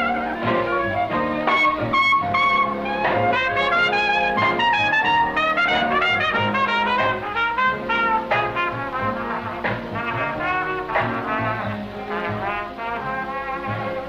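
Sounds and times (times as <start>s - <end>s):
jazz band with trumpet and trombone: 0.0s - 14.0s.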